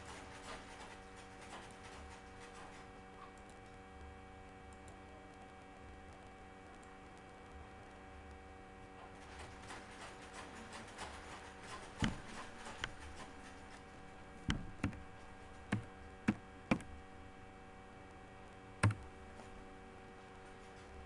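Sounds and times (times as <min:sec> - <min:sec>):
low electrical hum: 0:00.0 - 0:21.0
computer mouse clicking: 0:10.0 - 0:13.3, 0:14.5 - 0:16.9, 0:18.8 - 0:19.1.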